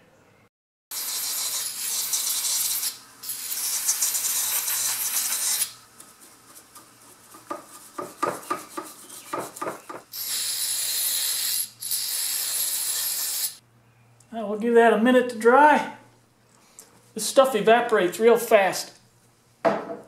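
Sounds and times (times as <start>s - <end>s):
aerosol spray hissing: 1.0s - 5.8s, 10.1s - 13.6s
small brush scrubbing: 1.0s - 9.9s.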